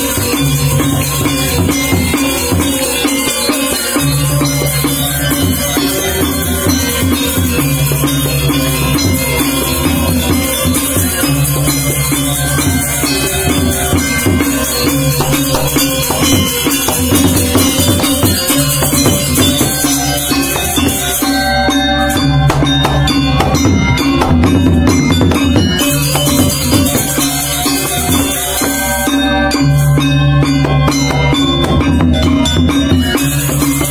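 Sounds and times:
gamelan ensemble playing: 0.0 - 33.9
hand drum: 0.0 - 33.9
sharp metallic strokes: 13.3 - 21.4.

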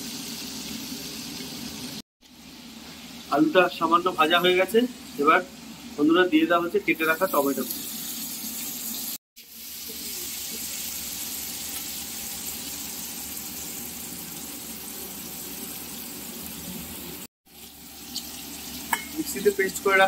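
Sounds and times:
oil sizzling in a pan: 0.0 - 20.0.

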